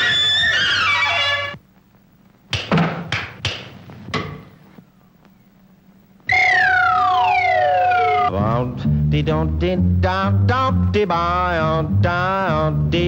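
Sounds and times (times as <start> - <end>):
sharp knocks: 2.5 - 4.5
sliding note falling in pitch: 6.3 - 8.3
held tone: 6.3 - 8.4.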